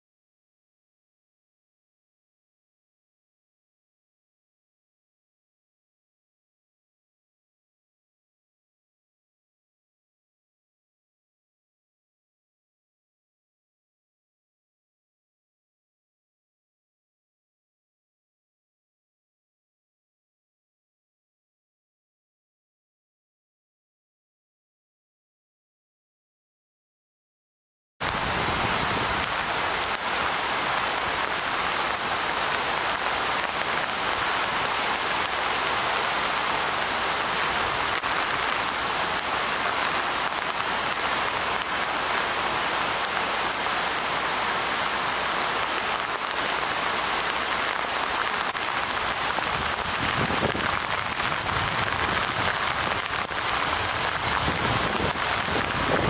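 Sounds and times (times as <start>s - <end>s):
heavy rain falling: 28.0s - 56.0s.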